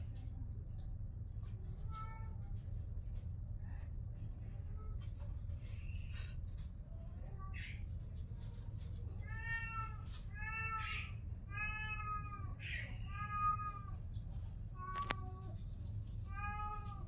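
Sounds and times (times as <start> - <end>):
steady low hum: 0.0 - 17.0
cat meowing: 9.0 - 14.0, 14.8 - 15.6, 16.2 - 17.0.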